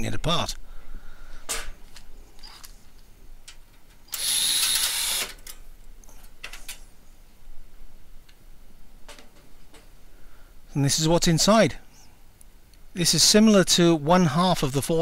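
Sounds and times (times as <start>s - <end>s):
cordless drill whining: 4.1s - 5.4s.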